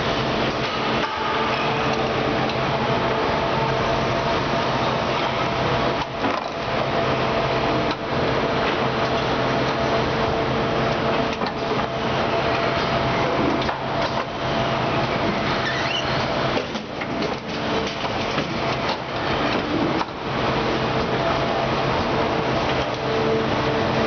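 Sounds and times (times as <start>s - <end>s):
factory machinery hum: 0.0s - 24.0s.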